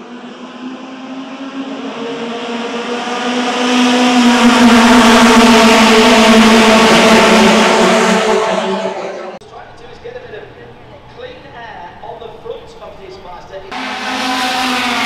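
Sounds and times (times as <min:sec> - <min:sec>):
race car engines droning: 0:00.0 - 0:15.0.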